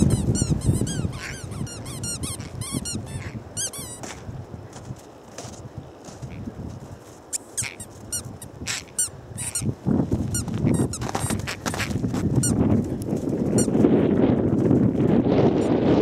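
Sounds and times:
squeaky toy squeaking: 0:00.0 - 0:04.2, 0:07.4 - 0:09.7, 0:10.3 - 0:12.6
wind noise on microphone: 0:00.0 - 0:16.0.

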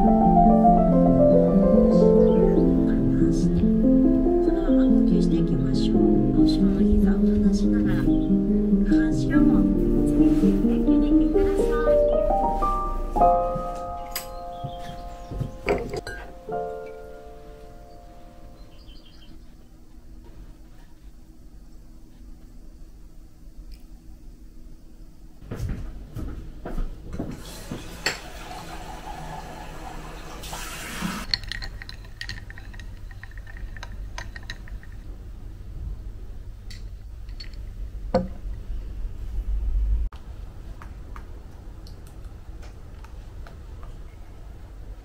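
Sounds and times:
dishes clinking and knocking: 0:13.6 - 0:16.4, 0:27.1 - 0:29.4, 0:31.3 - 0:35.0
water running from a tap: 0:27.4 - 0:31.3.

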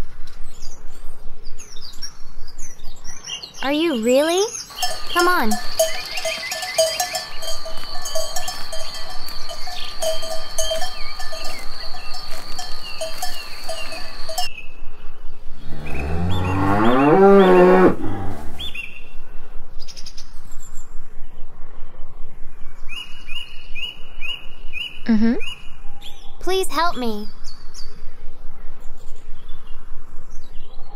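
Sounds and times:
cattle bells tinkling: 0:04.7 - 0:14.5
cow lowing: 0:15.6 - 0:18.7.

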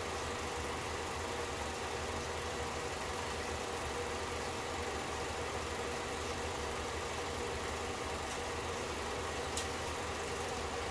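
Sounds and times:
film projector running: 0:00.0 - 0:10.9.

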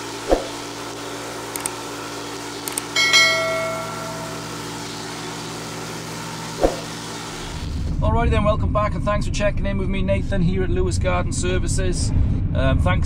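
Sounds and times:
pressure washer running: 0:00.0 - 0:07.9
bell ding: 0:02.9 - 0:05.4.

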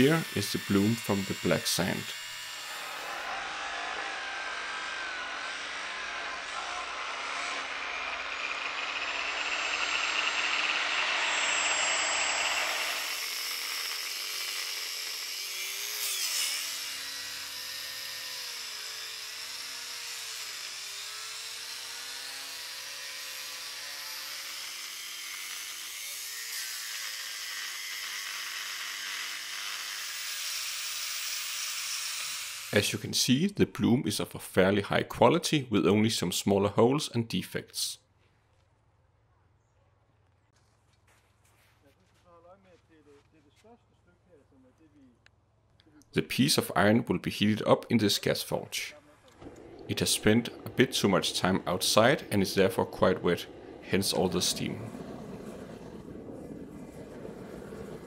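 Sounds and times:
angle grinder cutting metal: 0:00.0 - 0:33.0, 0:47.4 - 0:55.9.

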